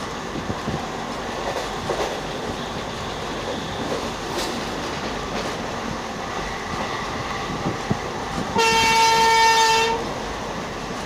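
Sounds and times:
train rail noise: 0.0s - 11.0s
locomotive horn: 8.5s - 10.1s.

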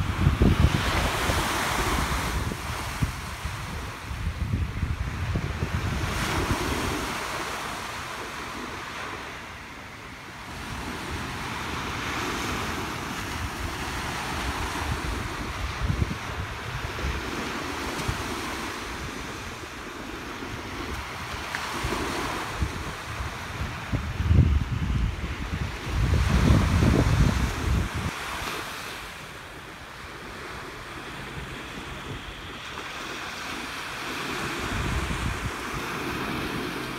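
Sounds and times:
waves breaking on beach: 0.0s - 36.9s
wind gusts on microphone: 0.0s - 36.9s.

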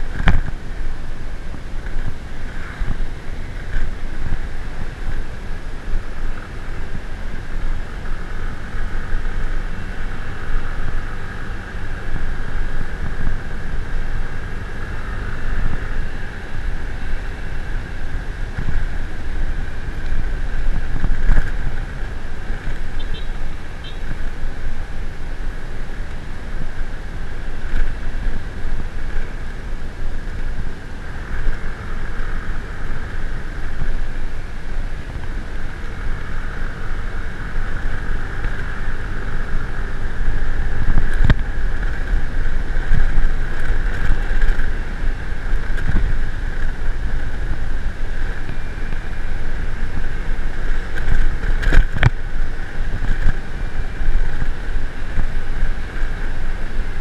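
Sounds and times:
vehicle running: 0.0s - 57.0s
wind buffeting microphone: 26.3s - 57.0s.

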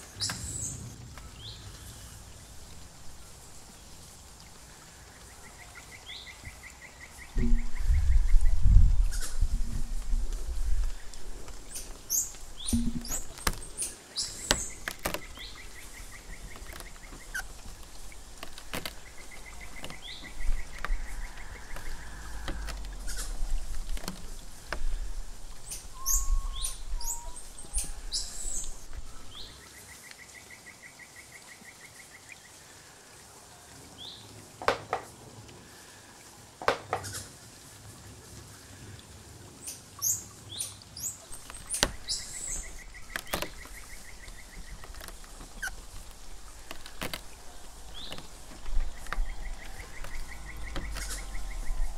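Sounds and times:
birds chirping: 0.0s - 32.6s, 39.6s - 51.9s.

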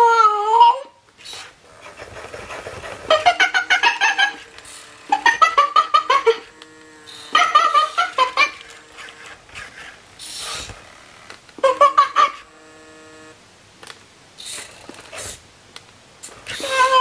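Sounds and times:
short hiss: 9.6s - 10.8s, 14.4s - 15.5s.

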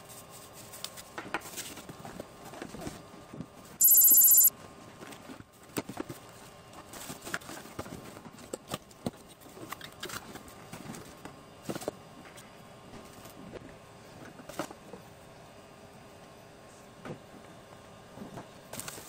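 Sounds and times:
high-pitched electronic beep: 3.8s - 4.5s.

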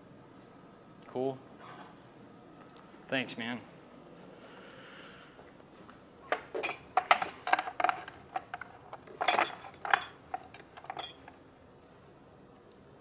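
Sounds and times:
tools clinking and clattering: 6.3s - 11.4s.

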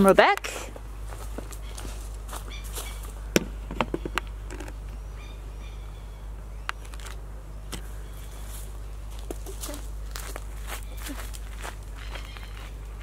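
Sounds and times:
low outdoor rumble: 0.0s - 13.0s
camera clicks and knocks: 3.4s - 4.8s.

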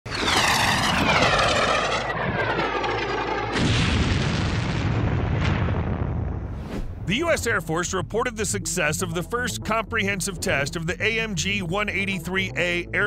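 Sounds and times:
missiles whistling whine: 0.1s - 4.9s
explosion blast with rumble: 0.1s - 7.1s.

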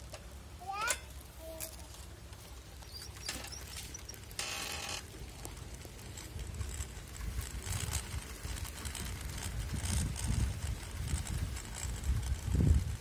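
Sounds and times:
tyre rumble on asphalt: 2.0s - 13.0s
bicycle freewheel ticking: 2.8s - 13.0s.

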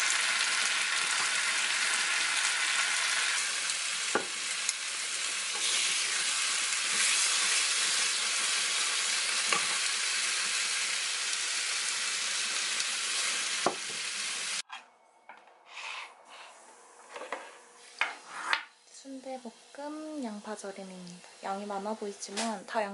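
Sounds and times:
food sizzling in frying pan: 0.0s - 14.6s.

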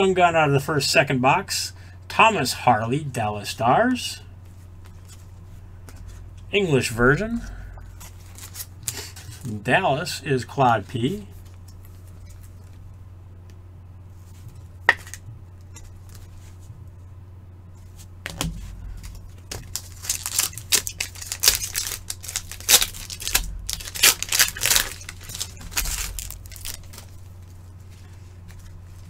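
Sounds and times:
wrapper tearing and crinkling: 7.3s - 9.4s, 18.9s - 27.6s.

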